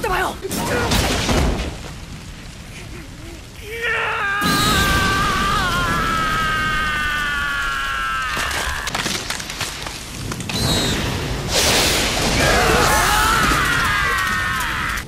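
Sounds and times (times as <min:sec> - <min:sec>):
sharp impacts and booms: 0:00.4 - 0:02.5, 0:08.5 - 0:14.0.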